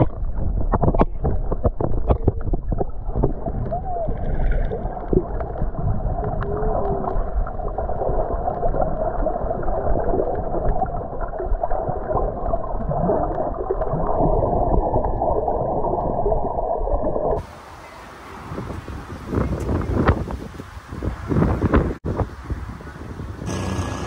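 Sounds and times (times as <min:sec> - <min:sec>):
small underwater clicks: 0:00.0 - 0:14.2
muffled underwater churning: 0:00.0 - 0:17.5, 0:23.5 - 0:24.0.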